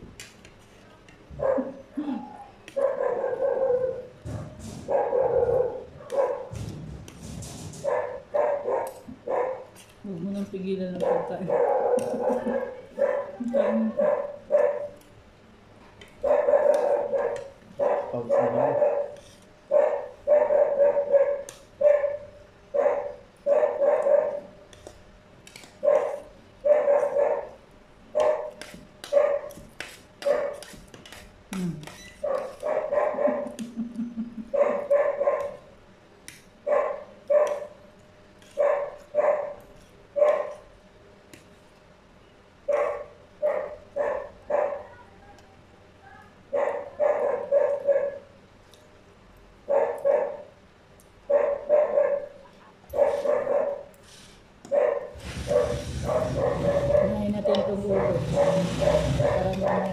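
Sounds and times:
dog barking: 0:01.4 - 0:01.8, 0:02.7 - 0:04.1, 0:04.8 - 0:06.5, 0:07.8 - 0:09.7, 0:11.0 - 0:15.0, 0:16.2 - 0:24.5, 0:25.8 - 0:29.6, 0:30.2 - 0:30.6, 0:32.2 - 0:33.6, 0:34.5 - 0:35.7, 0:36.6 - 0:37.8, 0:38.6 - 0:39.6, 0:40.2 - 0:40.6, 0:42.7 - 0:45.0, 0:46.5 - 0:48.3, 0:49.7 - 0:50.5, 0:51.3 - 0:53.9, 0:54.7 - 0:59.9.

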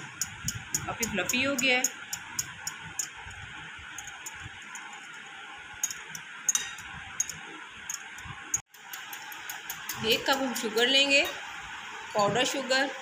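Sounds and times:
whisk clinking against glass bowl: 0:00.0 - 0:03.2.

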